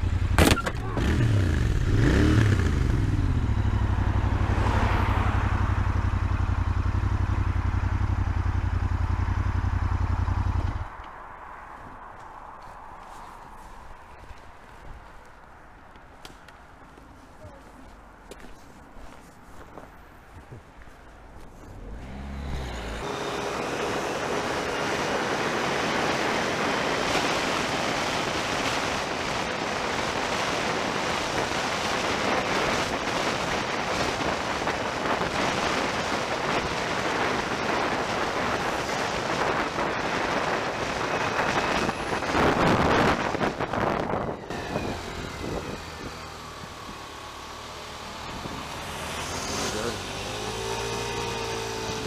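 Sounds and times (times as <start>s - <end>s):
motorcycle engine: 0.0s - 11.0s, 21.7s - 52.0s
wind roar: 21.8s - 52.0s.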